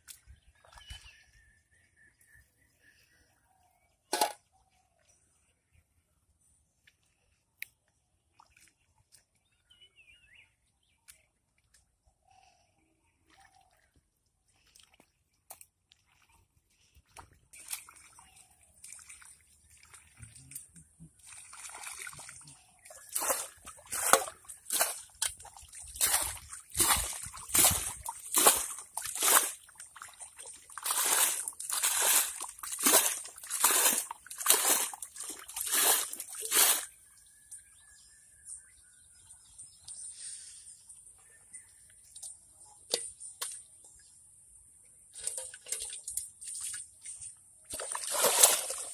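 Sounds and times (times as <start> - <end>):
water splashing from bowl: 17.2 - 36.9, 45.2 - 48.9.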